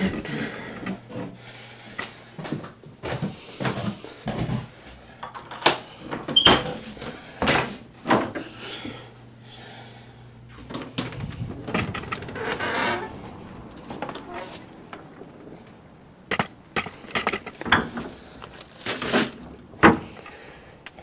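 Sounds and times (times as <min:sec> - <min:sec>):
irregular knocks and clunks: 0:10.6 - 0:12.7.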